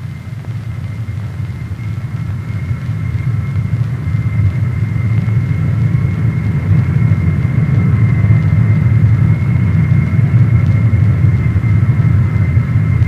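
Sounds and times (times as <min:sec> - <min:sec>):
high engine whine: 0:00.0 - 0:13.0
jet engines rumbling in flight: 0:00.0 - 0:13.0.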